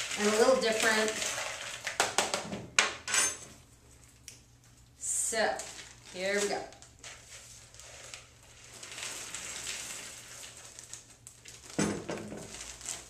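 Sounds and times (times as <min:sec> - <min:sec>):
trail mix pouring into plastic bag: 0:00.0 - 0:02.0, 0:05.7 - 0:13.0.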